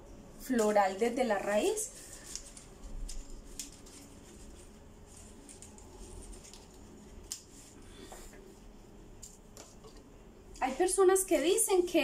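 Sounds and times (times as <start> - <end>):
leaves rustling: 1.5 - 7.8.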